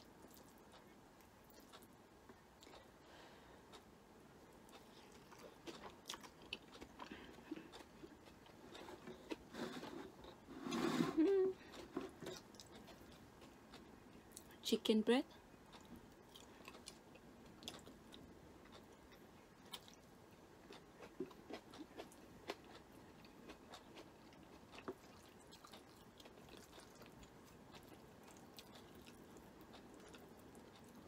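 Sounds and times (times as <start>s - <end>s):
chewing noodles: 4.7s - 10.9s, 11.6s - 14.5s, 15.6s - 31.0s.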